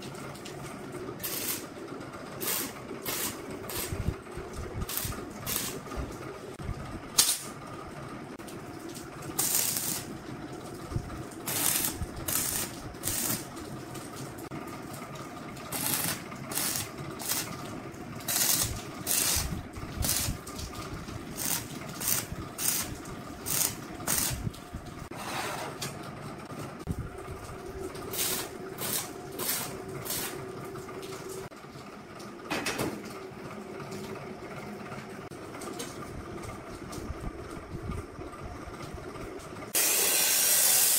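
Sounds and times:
steady hum: 0:00.0 - 0:31.5
welding arc crackling hisses: 0:01.2 - 0:01.7, 0:02.4 - 0:04.1, 0:04.8 - 0:05.9, 0:07.2 - 0:07.5, 0:09.4 - 0:10.1, 0:11.5 - 0:13.5, 0:15.7 - 0:17.6, 0:18.2 - 0:20.5, 0:21.2 - 0:24.5, 0:28.1 - 0:30.4, 0:39.8 - 0:40.9.

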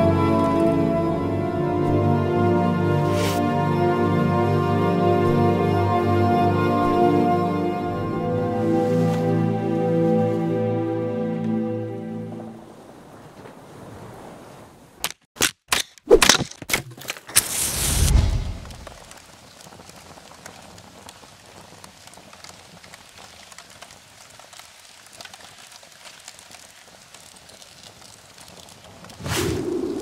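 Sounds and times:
sharp cracks: 0:15.0 - 0:20.0
campfire crackling and popping: 0:17.3 - 0:30.0
rushing burst: 0:17.4 - 0:19.1.

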